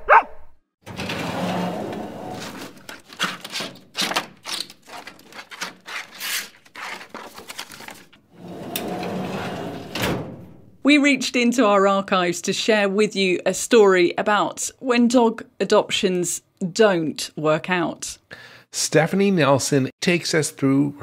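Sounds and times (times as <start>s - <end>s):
rushing scraping noise: 0.9s - 3.6s, 8.4s - 10.0s.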